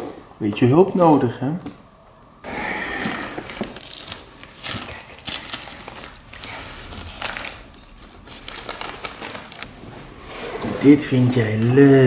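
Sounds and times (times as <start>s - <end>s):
wrapping paper crinkling: 3.1s - 9.8s.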